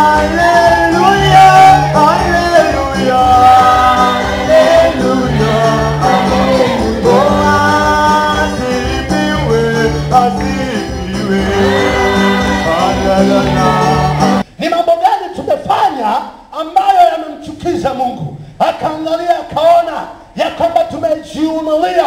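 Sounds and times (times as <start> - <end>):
steady percussion beat: 0.0 - 14.4
women's choir singing gospel: 0.0 - 14.4.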